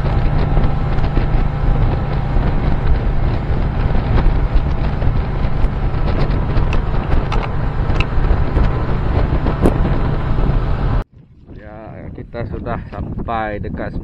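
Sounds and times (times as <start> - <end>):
outboard motor running: 0.0 - 11.0
wind buffeting microphone: 0.0 - 14.0.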